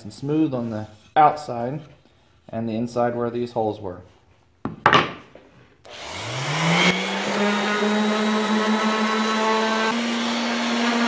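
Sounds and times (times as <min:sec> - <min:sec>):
orbital sander whining: 0:05.9 - 0:11.0.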